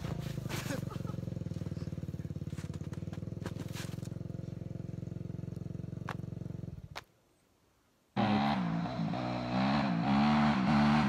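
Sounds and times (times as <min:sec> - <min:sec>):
dirt bike engine idling: 0:00.0 - 0:07.0.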